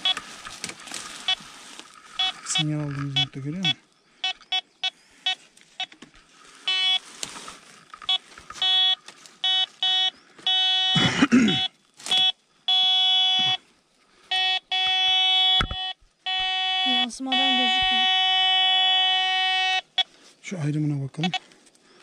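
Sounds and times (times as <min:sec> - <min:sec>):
short rustling: 0:00.0 - 0:03.3, 0:05.5 - 0:09.9
metal detector beeping: 0:00.0 - 0:06.0, 0:06.6 - 0:07.0, 0:07.9 - 0:13.6, 0:14.3 - 0:20.1, 0:21.2 - 0:21.5.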